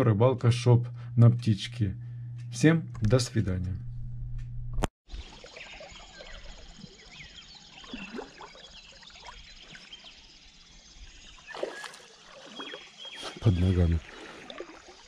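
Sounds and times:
birds chirping: 0:05.1 - 0:14.9
river water flowing: 0:11.4 - 0:13.3, 0:14.0 - 0:15.0
fish splashing at surface: 0:11.5 - 0:12.8.

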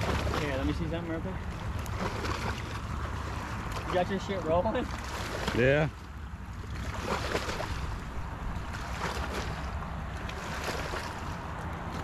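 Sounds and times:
small splashes and knocks: 0:00.0 - 0:12.0
water lapping at rocky shore: 0:00.0 - 0:12.0
wind rumbling on microphone: 0:06.7 - 0:12.0.

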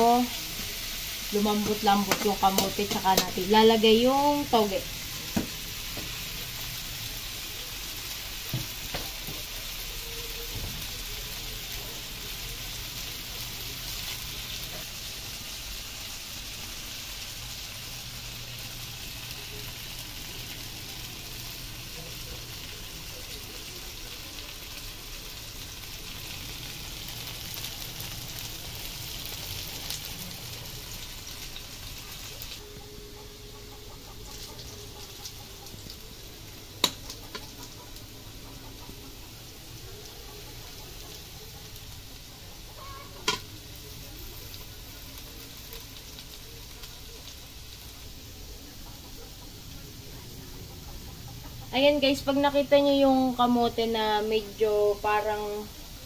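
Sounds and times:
food sizzling in oil: 0:00.0 - 0:56.0
metal spatula knocking wok: 0:01.5 - 0:03.5, 0:36.8 - 0:37.7, 0:43.2 - 0:43.5.

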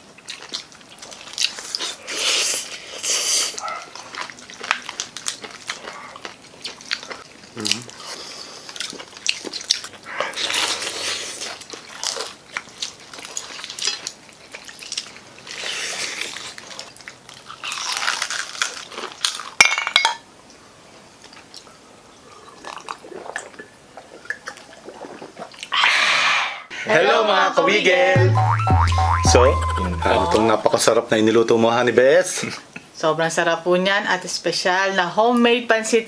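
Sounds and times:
crunching bites and chewing: 0:03.5 - 0:19.6.

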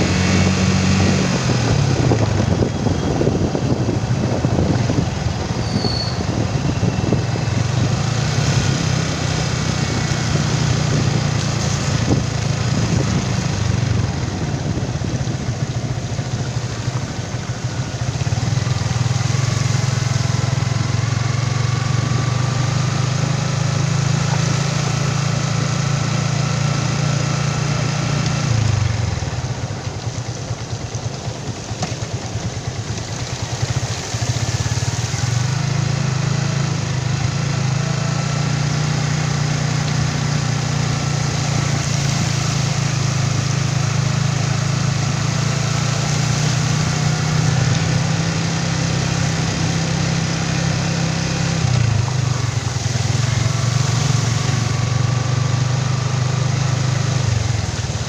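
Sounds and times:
motorcycle engine running: 0:00.0 - 0:58.0
tyres swishing through water: 0:00.0 - 0:58.0.

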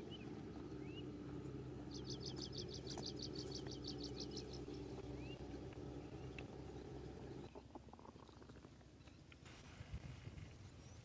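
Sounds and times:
bird singing a fast trill: 0:00.0 - 0:07.6
steady low hum: 0:00.0 - 0:11.0.

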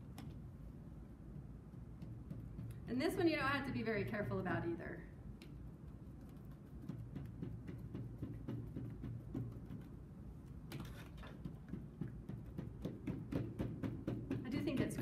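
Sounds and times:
cotton swabs tapping on paper: 0:01.8 - 0:02.9, 0:05.4 - 0:15.0.

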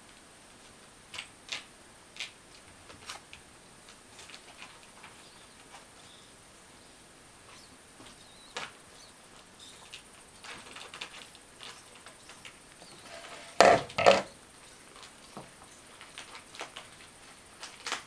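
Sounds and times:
kitten claws scratching wooden floor: 0:09.7 - 0:14.3.

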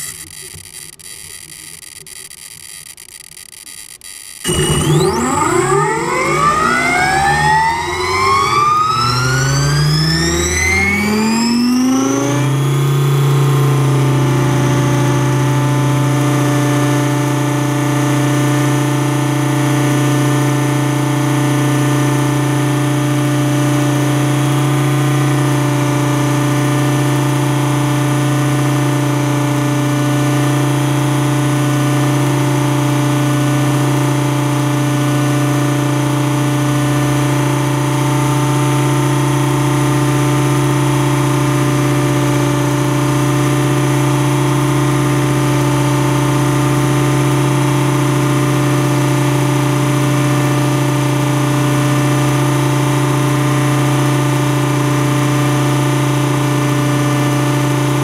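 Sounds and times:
rc helicopter motor whine: 0:00.0 - 0:29.2.

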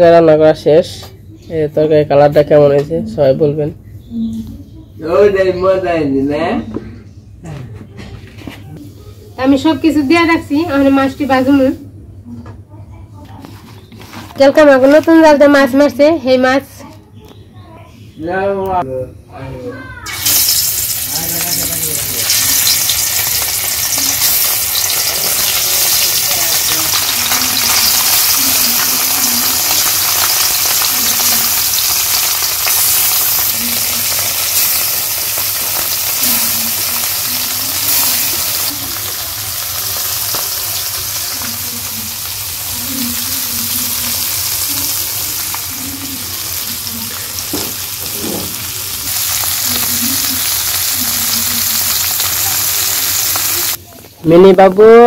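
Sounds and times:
fish sizzling in hot oil: 0:20.1 - 0:53.8.

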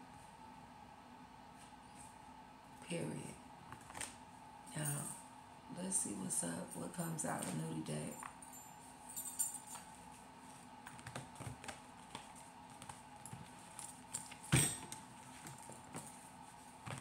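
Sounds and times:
cards being shuffled: 0:10.8 - 0:14.4.

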